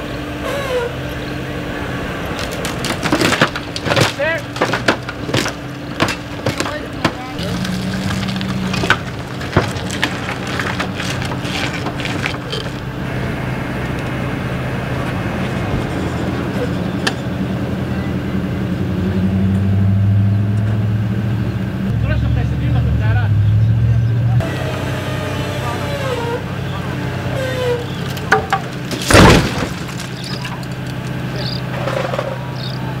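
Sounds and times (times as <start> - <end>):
truck engine idling: 0.0 - 33.0
car crashing thud: 2.4 - 12.8, 28.2 - 30.6.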